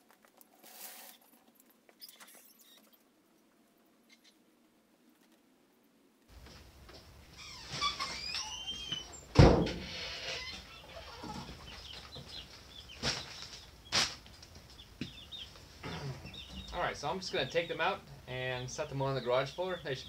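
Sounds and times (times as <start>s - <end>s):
chicks peeping: 7.3s - 20.0s
loud thump: 9.3s - 9.8s
sharp knocks: 9.3s - 9.8s
chick wings flapping: 10.5s - 14.8s.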